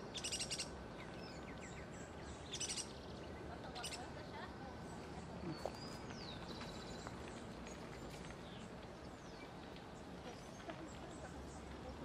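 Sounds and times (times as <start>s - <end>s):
young woodpecker calling: 0.0s - 3.1s, 3.7s - 4.0s.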